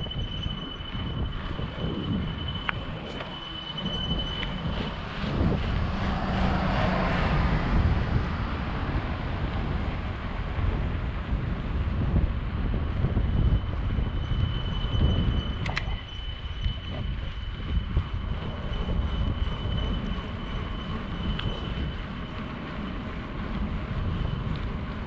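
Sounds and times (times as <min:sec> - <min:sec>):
thin high whine: 0:00.0 - 0:10.4, 0:12.9 - 0:25.0
bicycle tyre noise on pavement: 0:00.0 - 0:25.0
wind rumble on microphone: 0:00.0 - 0:25.0
bus passing: 0:01.5 - 0:13.4.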